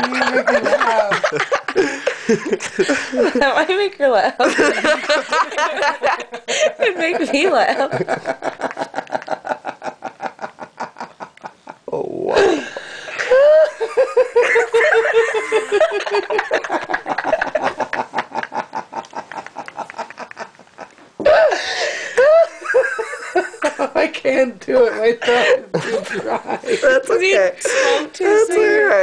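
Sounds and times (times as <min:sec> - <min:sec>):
person laughing hard: 0:07.9 - 0:23.7.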